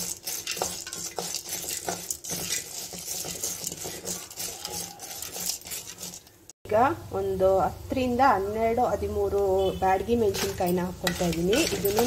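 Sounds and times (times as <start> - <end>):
spoon scraping a metal pan: 0.0 - 6.5, 10.1 - 12.0
faint frying sizzle: 0.0 - 12.0.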